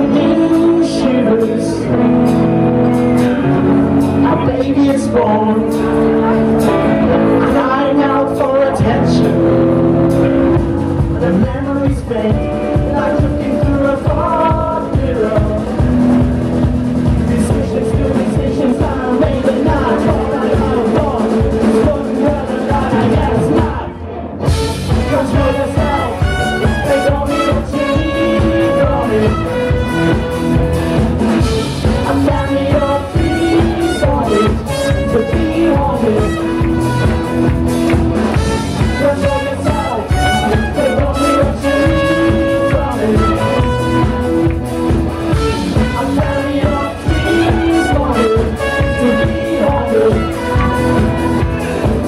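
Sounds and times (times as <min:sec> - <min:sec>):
person singing: 0:00.0 - 0:30.6, 0:31.4 - 0:52.0
live rock band playing: 0:00.0 - 0:52.0
woman singing: 0:45.8 - 0:51.7.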